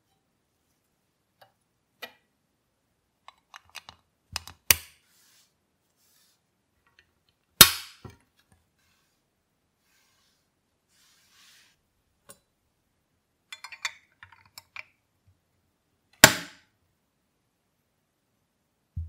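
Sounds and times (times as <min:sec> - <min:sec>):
plastic parts clicking: 0:03.2 - 0:04.9.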